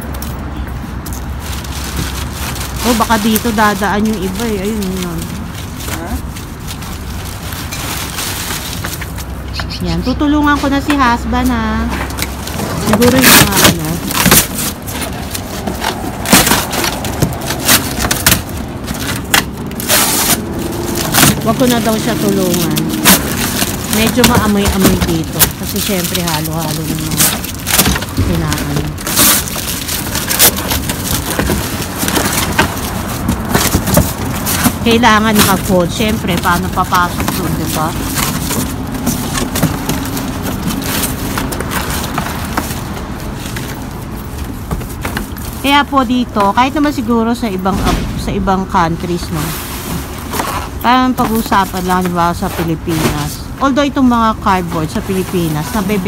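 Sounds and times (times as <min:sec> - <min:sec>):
low engine rumble: 0:00.0 - 0:56.0
cardboard and paper ripping: 0:01.3 - 0:09.4, 0:11.5 - 0:46.3, 0:49.0 - 0:53.5
steady low rumble: 0:45.4 - 0:56.0.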